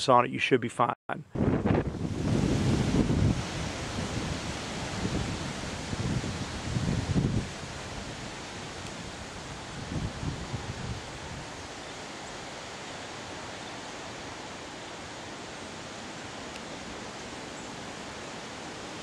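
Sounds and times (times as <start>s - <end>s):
strong wind rushing: 1.3s - 11.6s
wind gusts buffeting microphone: 1.3s - 19.0s.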